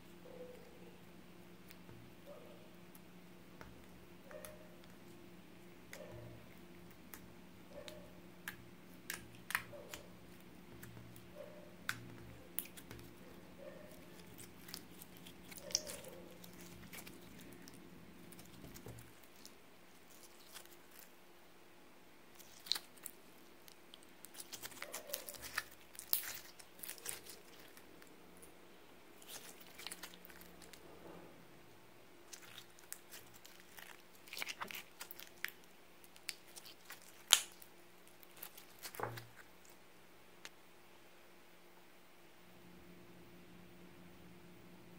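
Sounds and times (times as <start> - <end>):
slime squelching and popping: 6.9 - 13.3, 13.9 - 21.1, 22.3 - 27.9, 29.2 - 30.8, 32.3 - 39.5.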